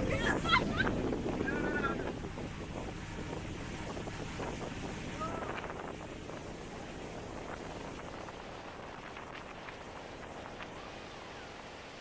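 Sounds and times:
water rushing past boat: 0:00.0 - 0:12.0
wind buffeting microphone: 0:00.0 - 0:12.0.

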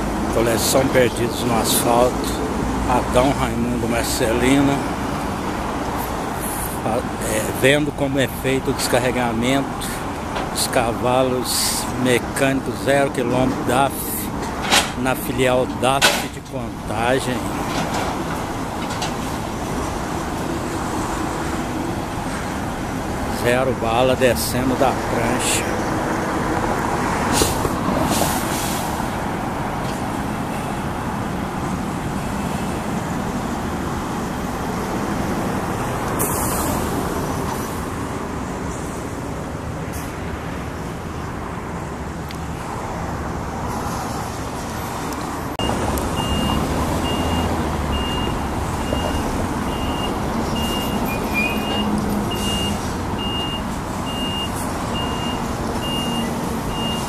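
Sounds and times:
passing traffic: 0:00.0 - 0:57.0
truck diesel engines running: 0:00.0 - 0:57.0
reversing alarm beeping: 0:45.6 - 0:57.0.

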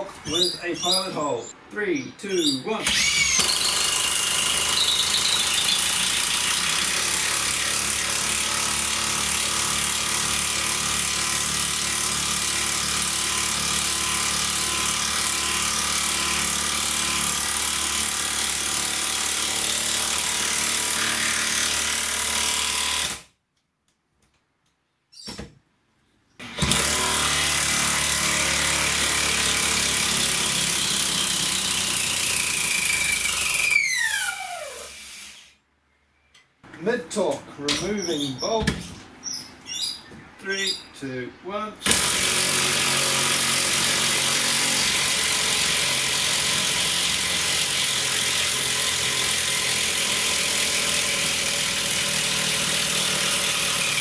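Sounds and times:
impact driver hammering screw: 0:02.9 - 0:19.4, 0:41.8 - 0:54.0.

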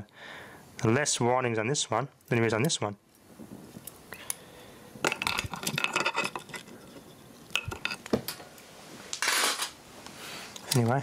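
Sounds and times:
small metal parts clinking: 0:05.0 - 0:08.1.

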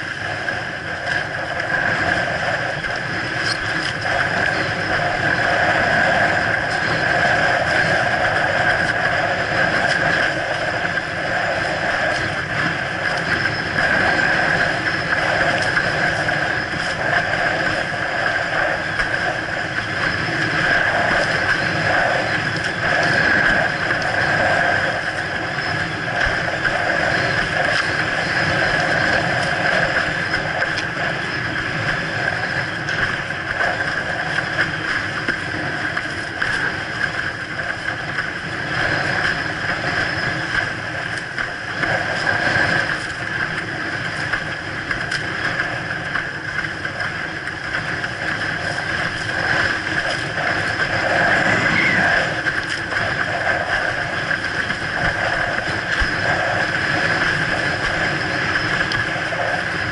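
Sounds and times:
rush of water and wind: 0:00.0 - 0:59.9
steady high hum: 0:00.0 - 0:59.9.

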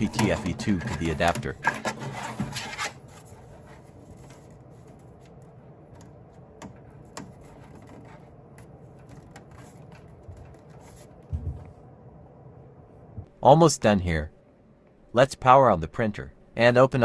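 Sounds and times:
soft low thump: 0:11.3 - 0:11.8.

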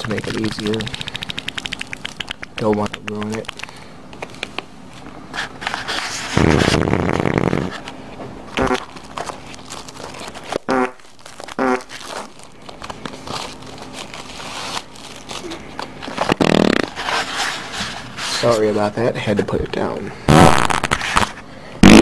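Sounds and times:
fart sound effects: 0:06.4 - 0:07.8, 0:08.6 - 0:08.9, 0:10.7 - 0:11.0, 0:11.6 - 0:11.9, 0:16.3 - 0:17.0, 0:20.3 - 0:21.0, 0:21.8 - 0:22.0.

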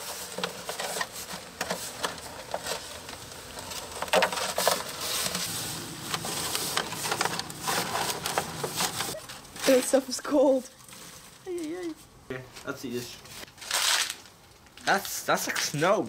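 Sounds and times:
crackles: 0:00.0 - 0:16.0
liquid nitrogen hissing: 0:00.0 - 0:16.0.

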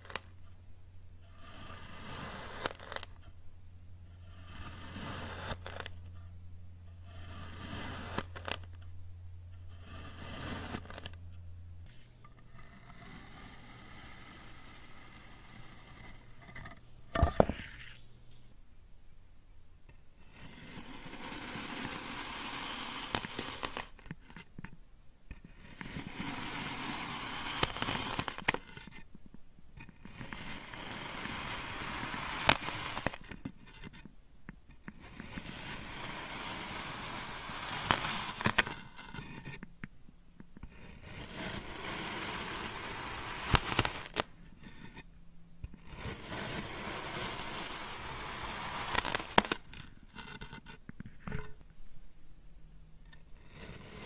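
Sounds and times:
knife scraping through sand: 0:09.7 - 0:11.2, 0:20.3 - 0:23.9, 0:40.8 - 0:45.0, 0:45.8 - 0:50.6.

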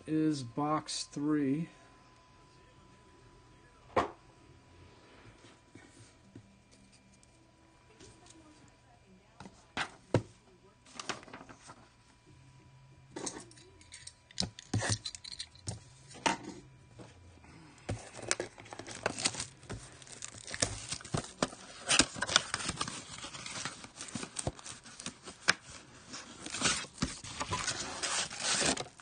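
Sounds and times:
plastic wrap crinkling and ripping: 0:18.0 - 0:29.0.

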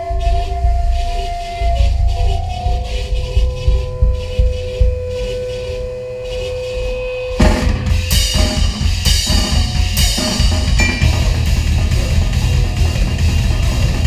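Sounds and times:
amplifier hum: 0:00.0 - 0:14.0
fast loud metal band: 0:00.0 - 0:14.0
pounding bass drum: 0:00.0 - 0:14.0
cymbal crashes: 0:07.4 - 0:13.4.

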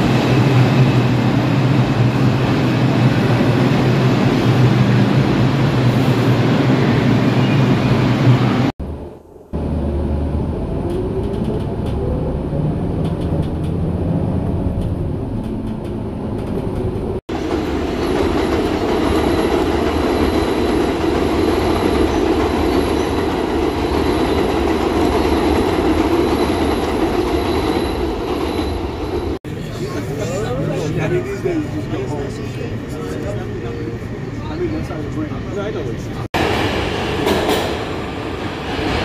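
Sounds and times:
train rumbling on rails: 0:00.0 - 0:39.0.

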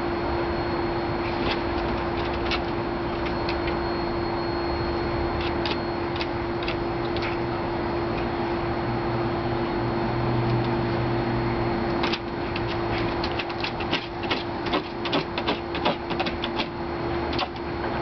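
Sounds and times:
constant hum: 0:00.0 - 0:18.0
dog claws clicking on wood: 0:12.0 - 0:16.7.

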